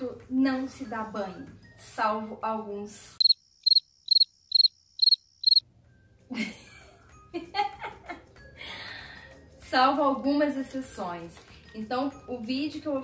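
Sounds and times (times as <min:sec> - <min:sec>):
cricket chirping: 0:03.2 - 0:05.6.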